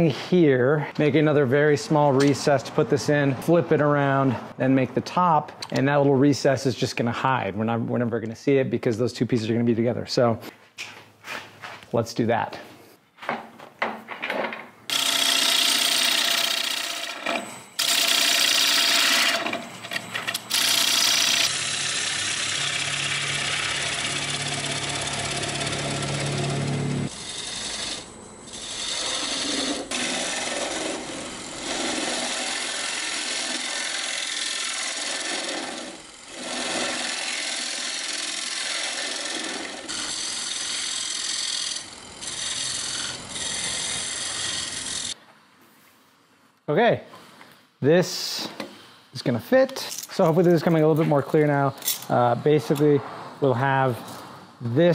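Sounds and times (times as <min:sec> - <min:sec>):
lathe tool scraping wood: 0:14.9 - 0:45.2.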